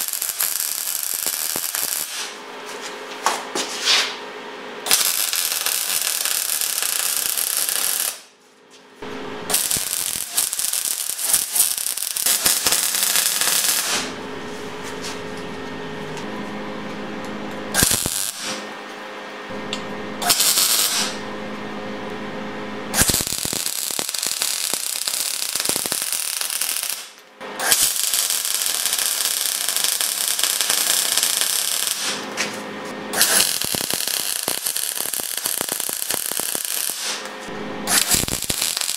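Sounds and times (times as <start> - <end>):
welder arc crackling: 0.0 - 2.4, 4.9 - 8.3, 9.0 - 14.2, 17.8 - 18.6, 19.7 - 21.2, 22.9 - 32.5, 33.2 - 38.9.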